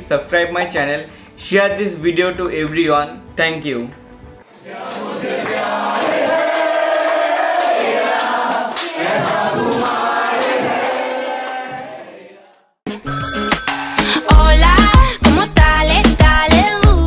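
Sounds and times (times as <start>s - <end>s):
music: 0.0s - 11.0s, 12.6s - 17.0s.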